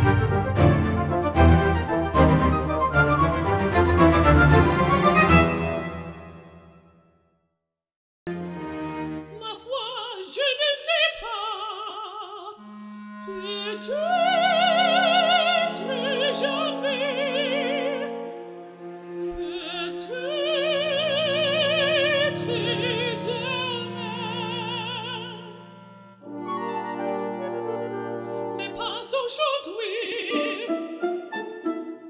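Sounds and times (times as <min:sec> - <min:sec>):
orchestral accompaniment: 0:00.0 - 0:06.9, 0:08.3 - 0:09.5, 0:12.6 - 0:29.1, 0:29.9 - 0:32.0
operatic voice singing: 0:09.4 - 0:12.6, 0:13.3 - 0:18.2, 0:19.2 - 0:25.7, 0:28.6 - 0:31.2.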